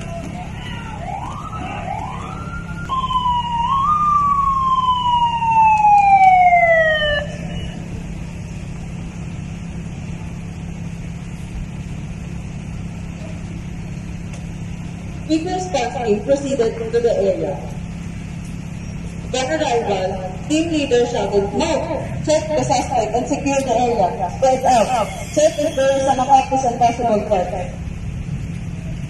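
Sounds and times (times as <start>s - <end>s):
police siren: 0.0s - 8.4s, 19.3s - 27.9s
steady low hum: 0.1s - 29.0s.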